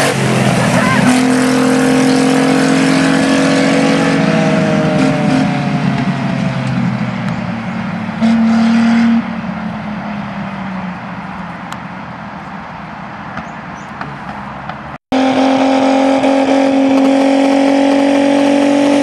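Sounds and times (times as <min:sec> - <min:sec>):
loud steady note: 0:00.0 - 0:07.0, 0:07.6 - 0:09.8, 0:15.1 - 0:19.0
tractor engine running: 0:00.0 - 0:19.0.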